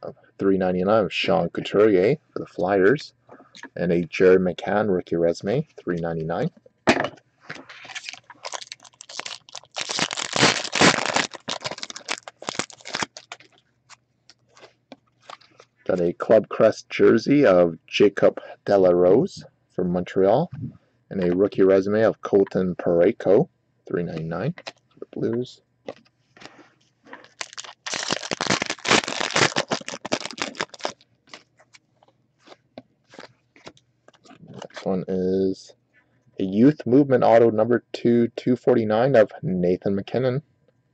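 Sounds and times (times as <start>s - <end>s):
cards rustling: 7.6s - 13.6s, 25.9s - 31.8s
foil wrapper crinkling: 7.7s - 15.6s, 27.2s - 34.9s.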